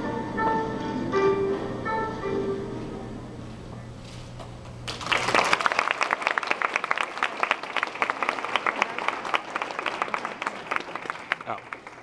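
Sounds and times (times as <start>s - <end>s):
audience applause: 4.9s - 12.0s.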